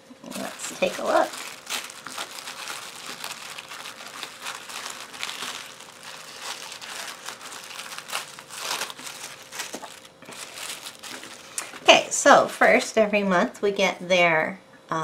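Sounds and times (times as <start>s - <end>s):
tissue paper crinkling: 0.3s - 11.9s.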